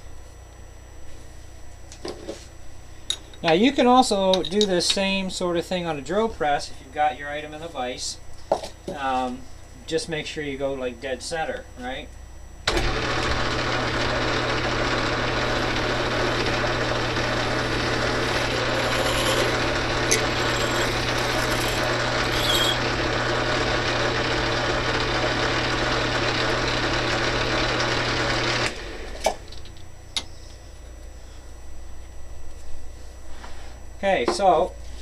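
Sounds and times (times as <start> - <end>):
lathe motor hum with cutting: 12.7 - 29.2.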